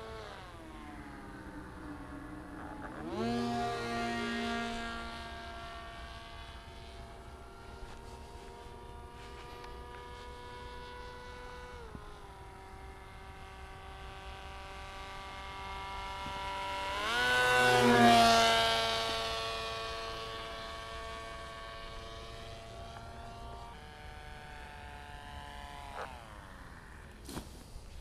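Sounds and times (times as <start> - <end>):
rc plane electric motor whining: 0.0 - 28.0.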